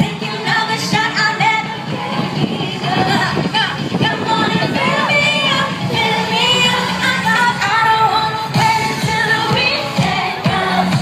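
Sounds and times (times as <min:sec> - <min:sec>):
woman singing: 0:00.0 - 0:01.8, 0:02.4 - 0:11.0
live pop band: 0:00.0 - 0:11.0.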